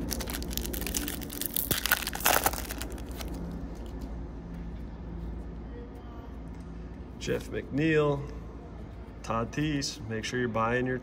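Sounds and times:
foil wrapper crinkling: 0.0s - 3.9s.

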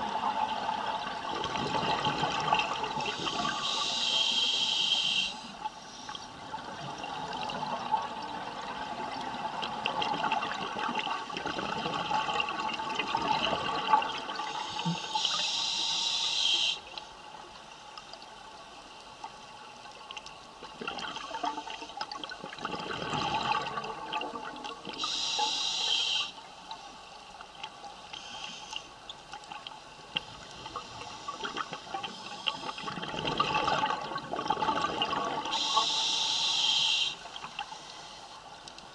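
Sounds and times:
scuba regulator inhalation hiss: 3.0s - 6.1s, 14.5s - 16.8s, 25.0s - 26.4s, 28.2s - 28.9s, 35.5s - 38.4s.

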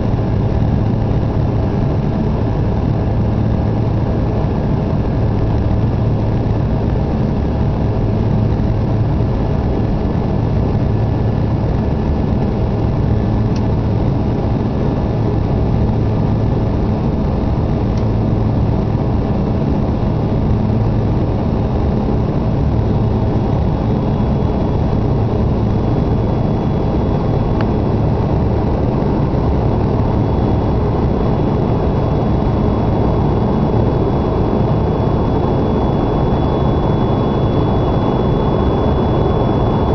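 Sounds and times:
jet engines in cabin: 0.0s - 39.9s
low hum: 0.0s - 39.9s.

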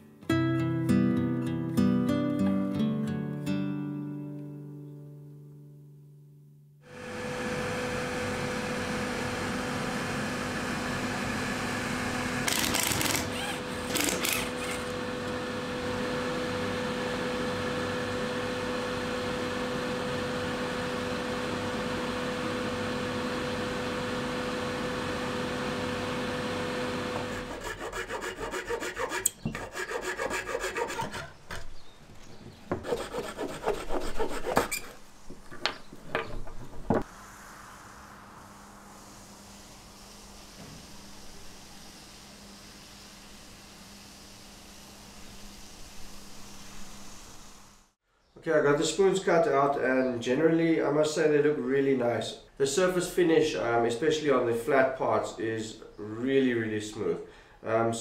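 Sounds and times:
workshop machine motor drone: 6.9s - 33.4s, 37.0s - 48.0s
short hissing surges: 37.0s - 48.0s.

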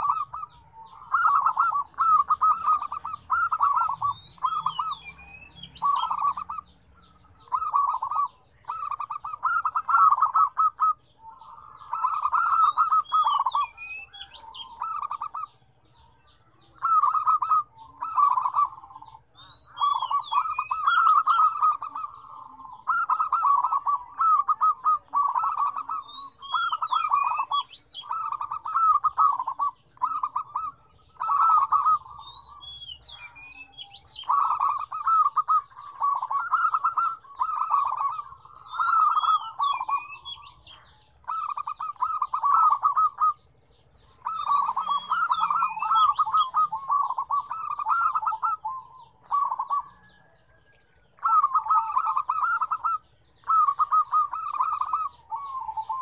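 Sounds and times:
doves cooing: 0.0s - 56.0s.

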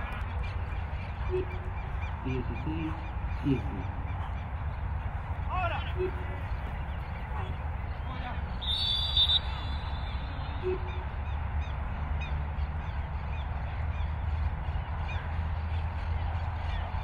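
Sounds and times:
low outdoor rumble: 0.0s - 17.0s
small birds chirping: 0.0s - 17.0s
referee's whistle blast: 8.6s - 10.8s.

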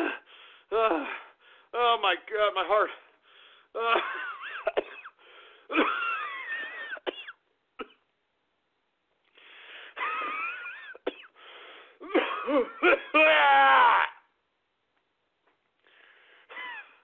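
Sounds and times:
man breathing heavily: 0.0s - 1.7s, 3.0s - 3.8s, 5.2s - 5.7s, 9.2s - 10.0s, 11.4s - 12.0s, 15.8s - 17.0s
man groaning and coughing: 3.8s - 8.0s, 10.0s - 11.4s, 12.0s - 14.2s, 16.5s - 17.0s.

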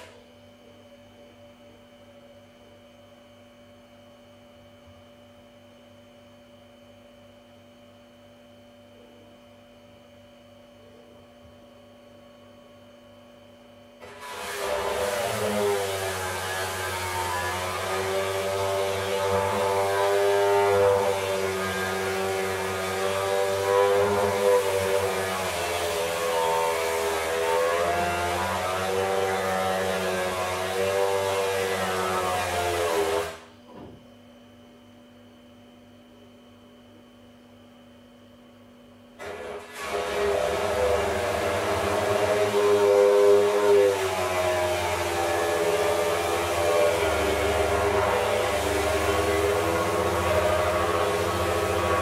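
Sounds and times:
faint electrical hum: 0.0s - 52.0s
faint hum: 0.1s - 14.0s
chainsaw running: 14.3s - 33.4s, 39.2s - 52.0s.

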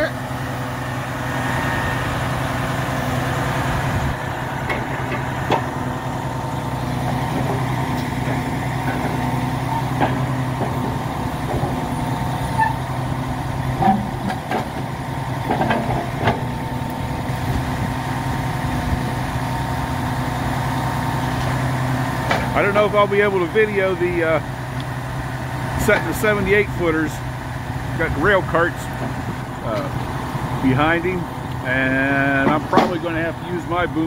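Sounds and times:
truck diesel engine running: 0.0s - 34.0s.

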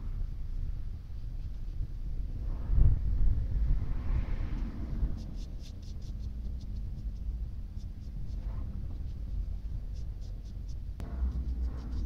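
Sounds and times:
steady low rumble: 0.0s - 12.0s
paintbrush brushing on metal: 5.2s - 12.0s.

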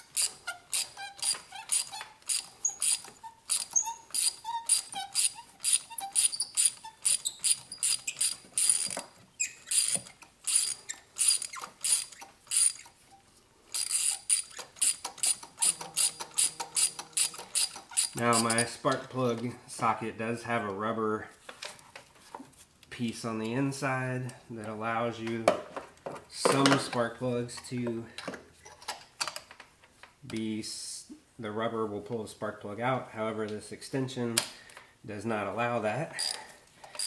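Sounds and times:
ratchet wrench clicking: 0.1s - 9.0s, 9.6s - 12.9s, 13.7s - 18.6s.

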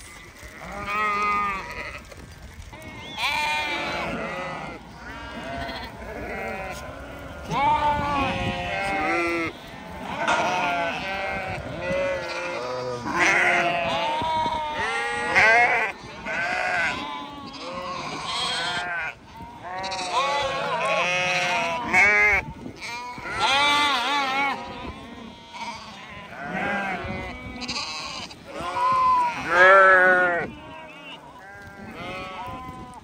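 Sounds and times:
sheep bleating: 0.0s - 2.1s, 2.8s - 33.0s.

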